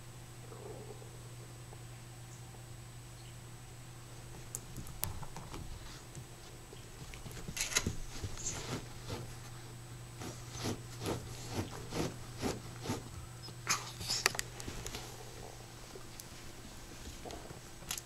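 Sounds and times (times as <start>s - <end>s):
dog paws scraping carpet and wood: 4.4s - 17.4s.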